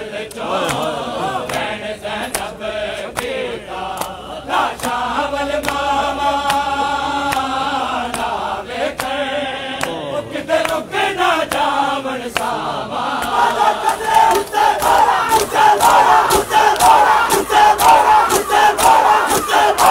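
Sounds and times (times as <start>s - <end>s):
men chanting a lament: 0.0s - 19.9s
hands slapping bare chests: 3.1s - 4.2s, 5.6s - 5.8s, 13.2s - 19.9s.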